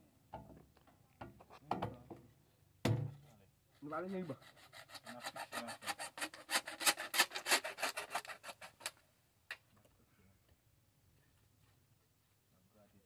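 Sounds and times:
rasping strokes on plastic pipe: 3.2 - 9.0.

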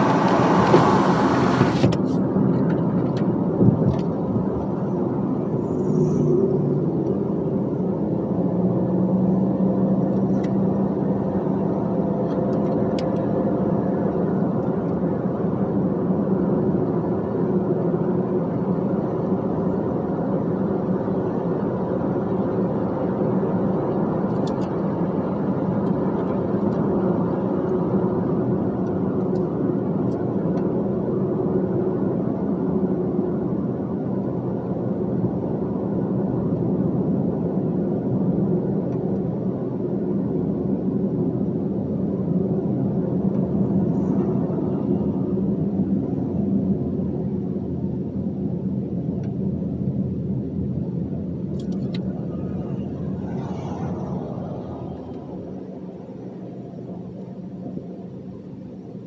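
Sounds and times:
tyre and road noise: 0.0 - 15.5, 50.6 - 59.0
diesel truck engine drone: 0.0 - 59.0.

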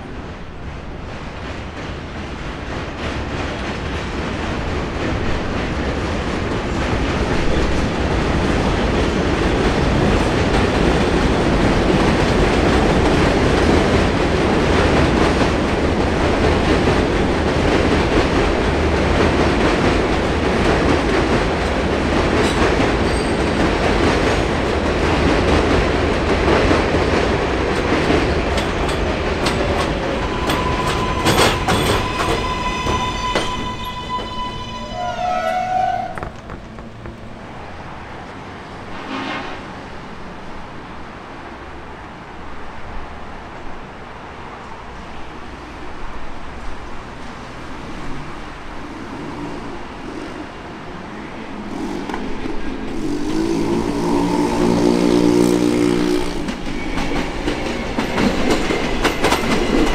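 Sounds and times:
train rumbling on elevated track: 0.0 - 59.9
high squeal of train: 4.7 - 25.0, 26.8 - 40.2, 43.8 - 59.9
train wheel clicks: 14.8 - 33.9, 56.2 - 59.9.

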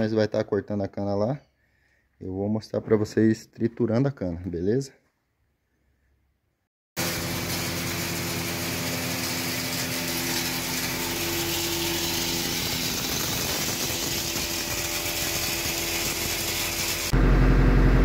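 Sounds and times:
hammer mill grinding corn: 7.0 - 18.0.

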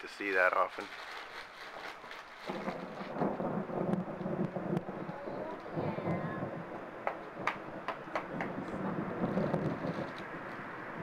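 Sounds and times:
thunder rumbling: 2.5 - 11.0.

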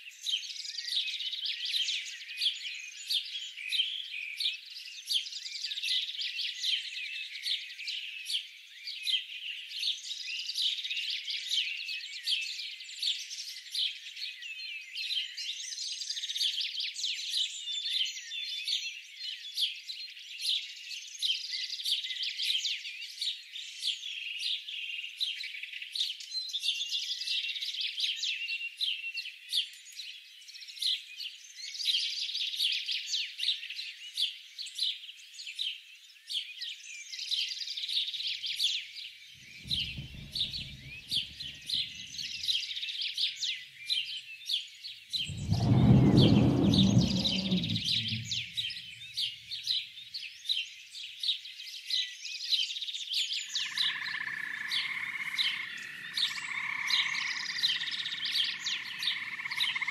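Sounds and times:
birds chirping: 39.4 - 42.4, 45.2 - 49.2
low rumbling growl: 39.6 - 41.9, 45.2 - 48.8.

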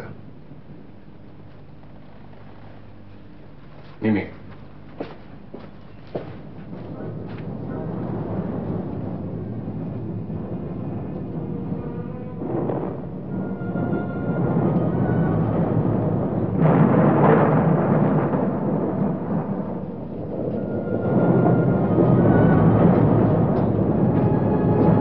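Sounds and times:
deep rolling rumble: 0.0 - 25.0.

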